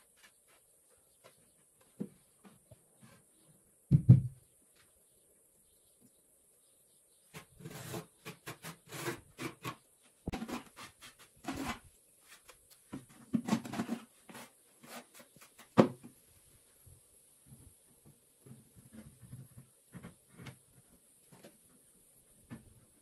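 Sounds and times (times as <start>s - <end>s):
trowel scraping mortar: 7.3s - 12.5s.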